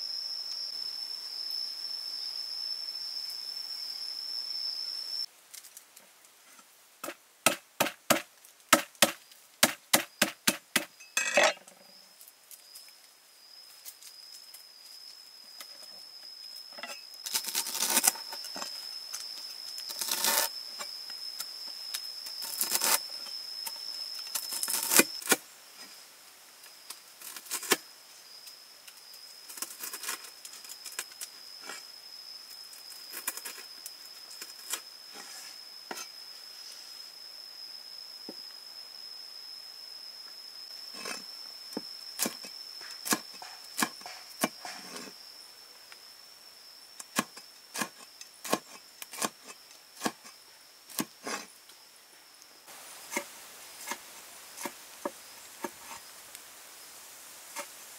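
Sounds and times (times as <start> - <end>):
high insect drone: 0.0 - 57.9
cleaver chopping on wooden board: 7.0 - 10.9.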